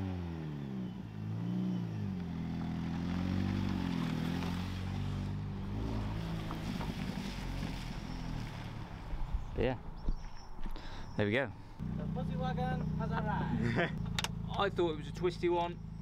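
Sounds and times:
tyres on gravel: 0:02.0 - 0:11.0
car engine running: 0:11.8 - 0:16.0.

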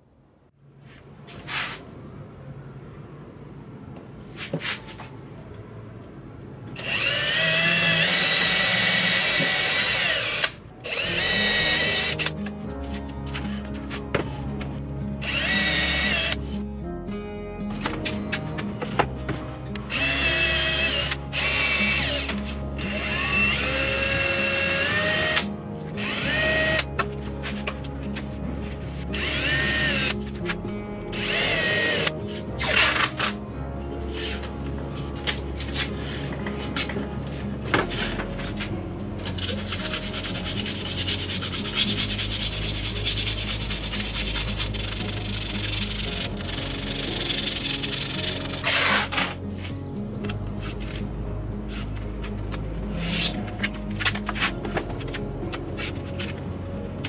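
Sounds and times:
cordless drill whining: 0:06.8 - 0:12.3, 0:15.2 - 0:16.4, 0:19.9 - 0:26.9, 0:29.2 - 0:30.2, 0:31.2 - 0:33.2
masking tape pulled off roll: 0:39.3 - 0:49.8.

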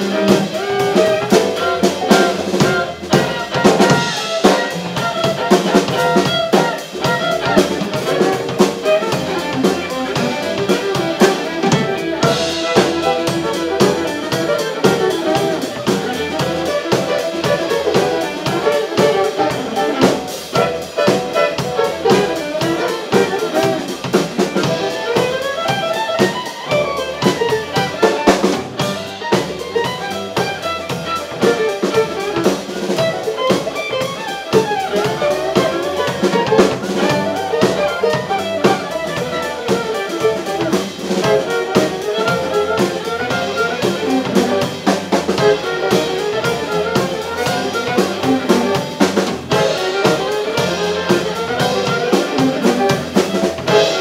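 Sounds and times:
live band playing instrumental: 0:00.0 - 0:54.0
steady drum beat: 0:00.0 - 0:54.0.

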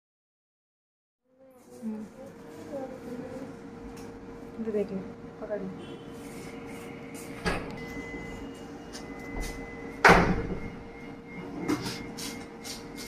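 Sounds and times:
faint steady high tone: 0:05.8 - 0:12.6.

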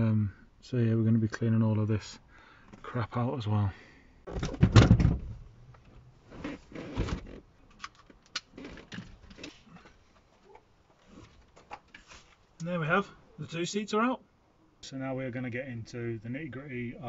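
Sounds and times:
car seat thumps and rustling: 0:04.3 - 0:05.4, 0:06.4 - 0:07.4.

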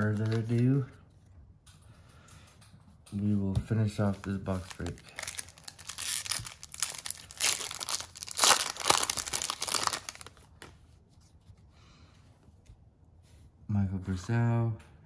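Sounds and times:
foil wrapper tearing and crinkling: 0:04.6 - 0:10.4.

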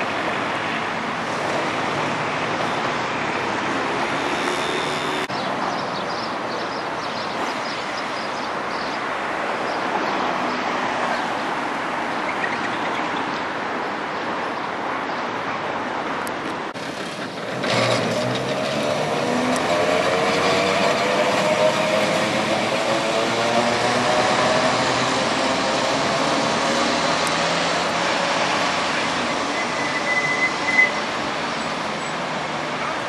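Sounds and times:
high squeal: 0:29.2 - 0:31.2.

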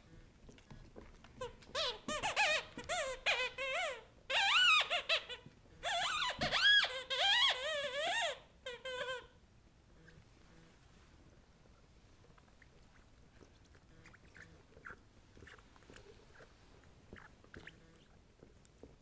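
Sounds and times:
squeaky toy squeaking: 0:01.4 - 0:09.4.

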